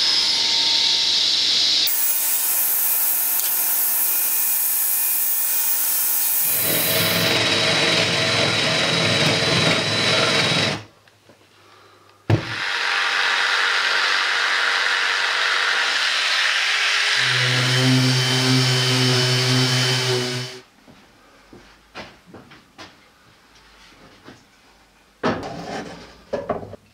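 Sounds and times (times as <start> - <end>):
orbital sander on wood panel: 0.0 - 10.8, 12.4 - 20.6
cordless drill boring through plywood: 0.0 - 10.9, 12.4 - 20.6.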